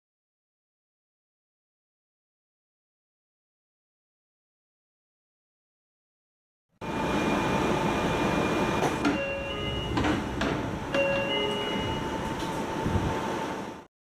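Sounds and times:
steady hum: 6.8 - 13.9
train doors opening and closing: 7.2 - 13.8
held tones: 10.9 - 12.3.

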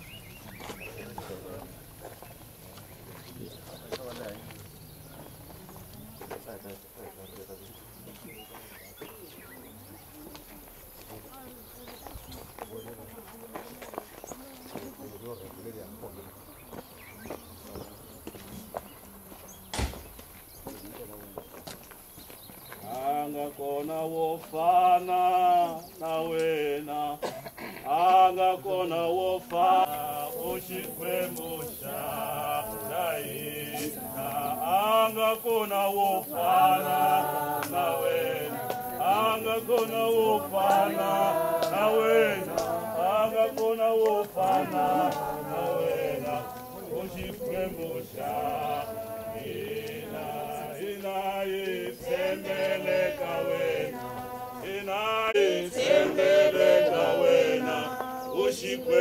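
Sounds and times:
group singing a hymn: 22.8 - 59.0.

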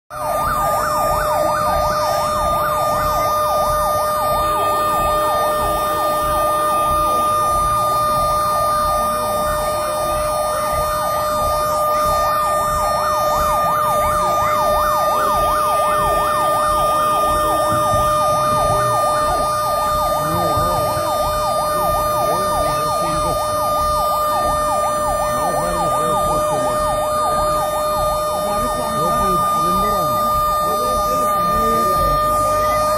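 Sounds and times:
fire engine siren yelping: 0.1 - 32.9.

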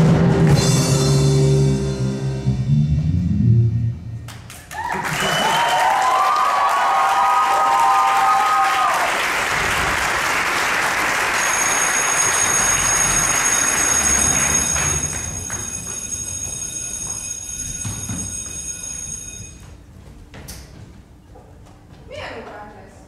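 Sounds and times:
audience applause: 4.5 - 15.8
footsteps and shuffling: 14.2 - 23.0.

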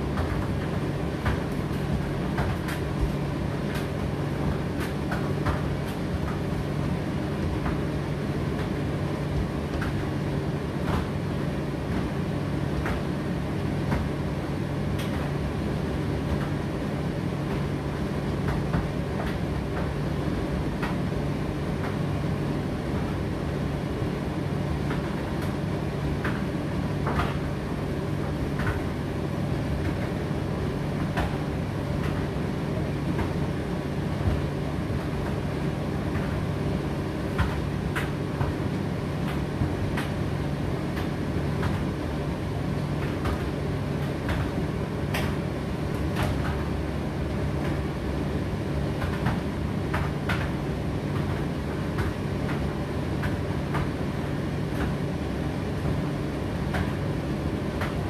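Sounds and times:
clicks and knocks of tumbling load: 0.0 - 15.5, 42.7 - 58.0
tumble dryer running: 0.0 - 58.0.

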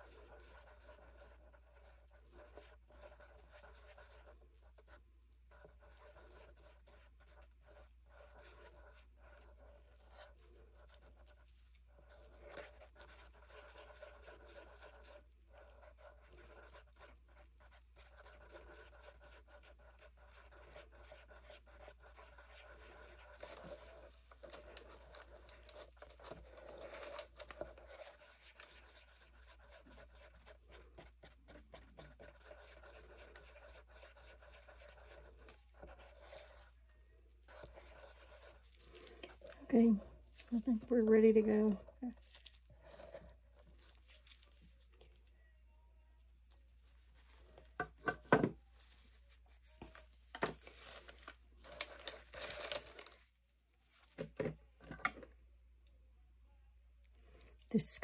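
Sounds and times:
handling scratches and clicks: 5.6 - 39.6, 49.6 - 53.3.

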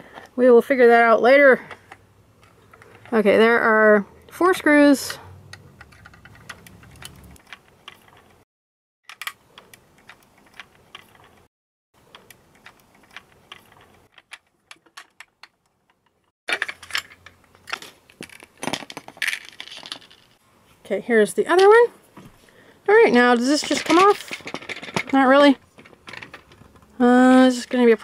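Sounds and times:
screws and parts handled: 5.0 - 8.4, 9.1 - 11.5, 12.1 - 20.4, 23.1 - 27.9.

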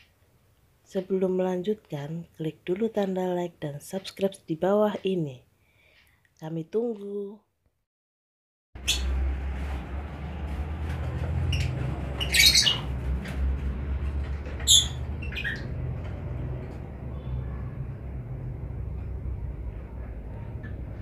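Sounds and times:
steady low rumble: 9.0 - 21.0
lovebirds squawking: 11.4 - 13.0, 14.6 - 15.8.

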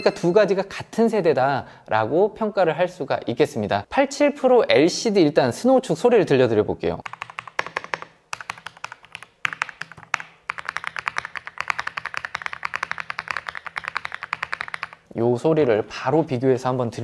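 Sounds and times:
mechanical keyboard typing: 7.0 - 15.0.

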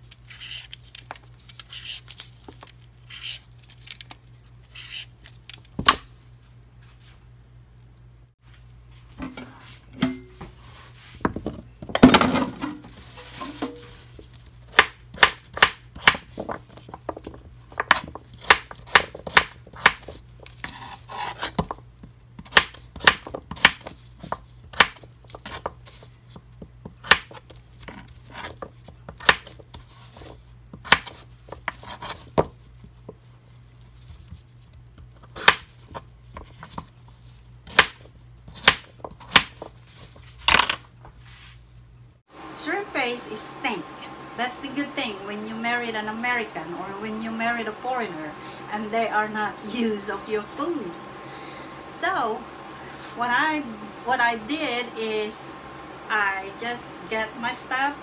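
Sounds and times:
knife chopping on cutting board: 37.7 - 39.6.

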